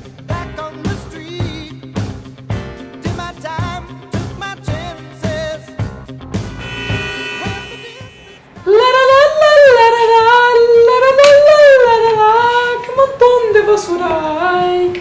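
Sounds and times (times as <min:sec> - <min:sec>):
person singing unaccompanied: 0:06.9 - 0:15.0.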